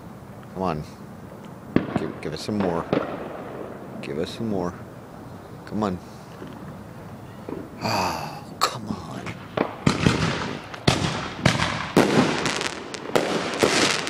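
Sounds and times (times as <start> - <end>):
fireworks bangs: 1.7 - 4.4, 9.0 - 14.0.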